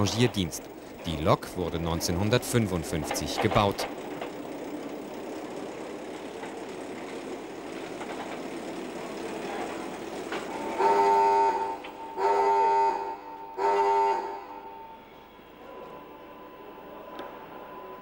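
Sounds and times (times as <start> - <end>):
locomotive rolling: 0.0 - 18.0
railway horn blasts: 10.6 - 15.7.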